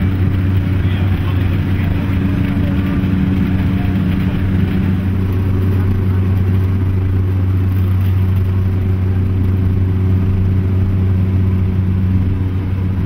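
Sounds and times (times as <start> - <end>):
turboprop engine drone in cabin: 0.0 - 13.0.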